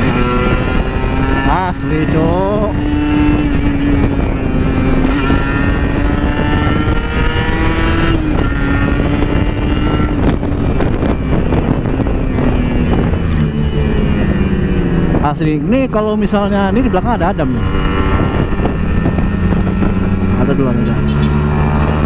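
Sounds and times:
motorcycle engine running: 0.0s - 22.0s
wind rushing across microphone: 0.0s - 22.0s.

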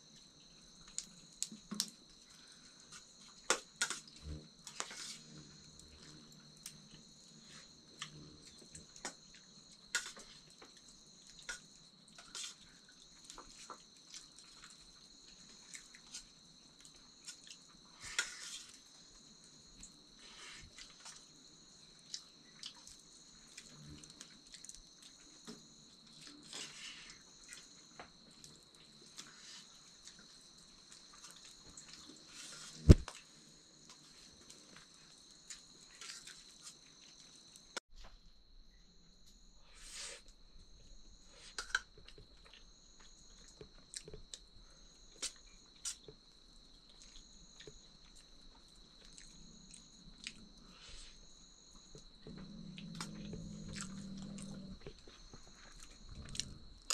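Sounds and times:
insects droning: 0.0s - 56.9s
pulsing insect trill: 0.0s - 56.9s
person chewing: 52.4s - 56.9s.

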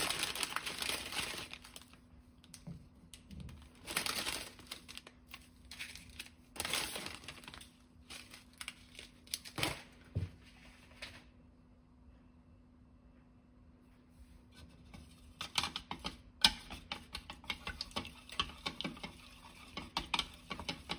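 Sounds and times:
plastic wrapper crinkling: 0.0s - 2.6s, 3.5s - 10.0s.

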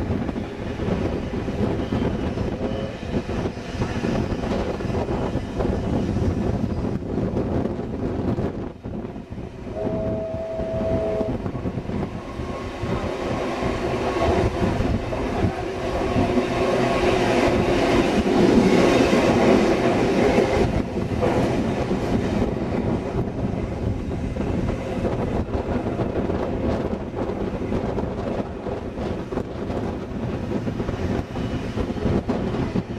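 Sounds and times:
train wheels clattering on rails: 0.0s - 8.8s, 11.7s - 32.9s
two-note train whistle: 9.7s - 11.6s.

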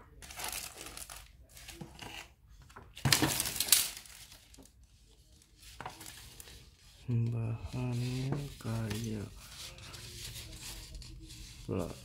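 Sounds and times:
plastic sheet crinkling: 0.2s - 1.8s, 3.0s - 6.9s.

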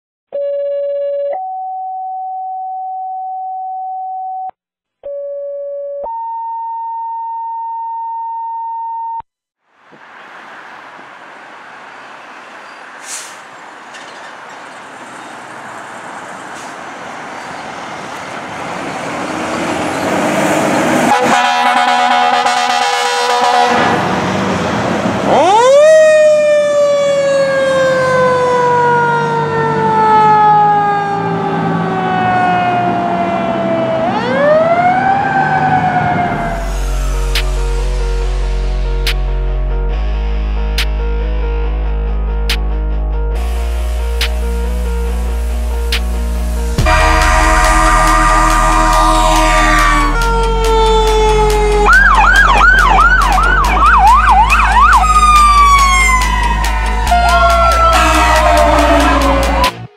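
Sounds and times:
fire trucks pulling out: 9.8s - 39.2s, 43.4s - 59.9s
air horn blast: 20.9s - 24.1s, 43.4s - 54.8s, 55.4s - 59.9s.

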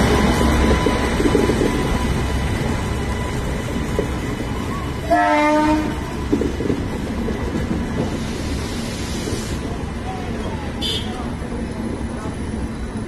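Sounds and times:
train horn blast: 5.0s - 6.0s.

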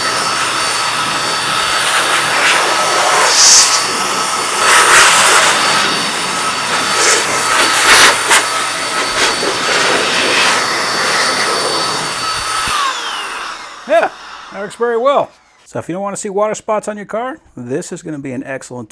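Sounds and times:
car dryer blower rushing air: 0.0s - 15.7s
high-pitched motor whine: 0.0s - 15.7s.

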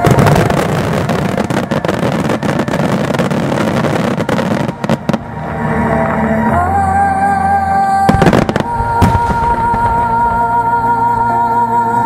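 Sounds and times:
fireworks bursting and crackling: 0.0s - 6.2s, 8.1s - 10.6s.

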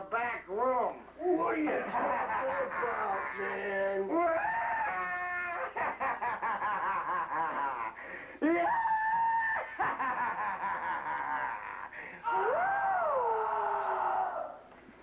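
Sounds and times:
person laughing: 1.7s - 3.6s, 5.0s - 8.0s, 9.6s - 12.0s
long high scream: 8.4s - 9.8s, 12.2s - 14.6s.

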